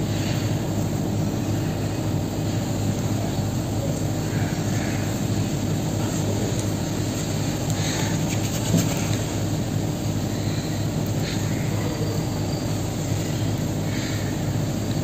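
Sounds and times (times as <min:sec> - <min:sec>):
faint rustles: 0:06.0 - 0:09.6.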